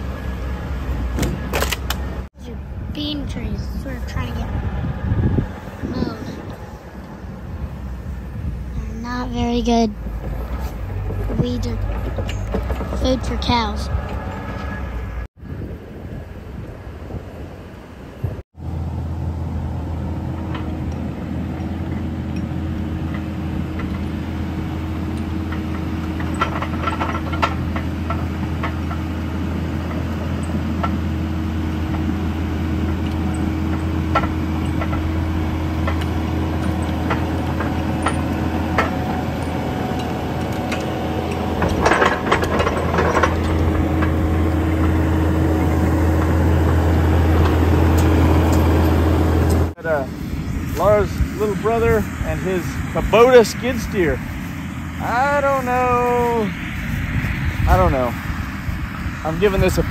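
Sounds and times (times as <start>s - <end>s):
diesel engine running: 0.0s - 59.9s
metal clanks and rattles: 9.4s - 15.1s, 20.3s - 31.1s, 32.8s - 49.7s.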